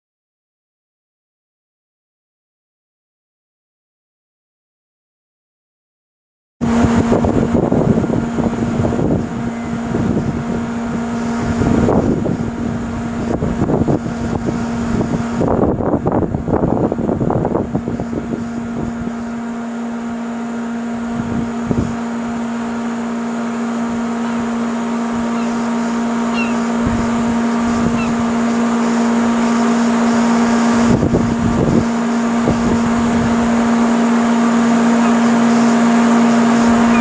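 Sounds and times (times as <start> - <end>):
wind buffeting microphone: 6.6 - 20.3, 20.9 - 22.2, 23.8 - 37.0
steady mechanical hum: 6.6 - 37.0.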